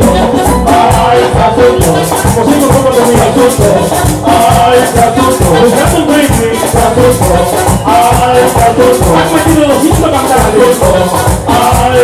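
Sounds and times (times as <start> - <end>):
bass: 0.0 - 12.0
hand drums: 0.0 - 12.0
melodic lines: 0.0 - 12.0
metal percussion scraping beat: 0.0 - 12.0.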